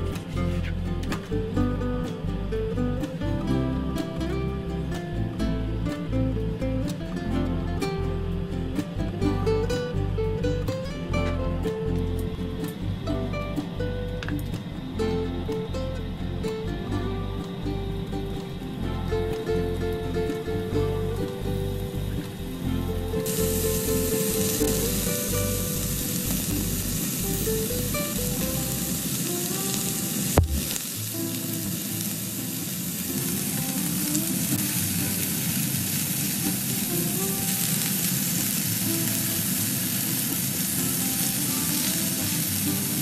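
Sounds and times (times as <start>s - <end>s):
meat sizzling in a frying pan: 23.2s - 43.0s
sharp knock: 30.4s - 30.8s.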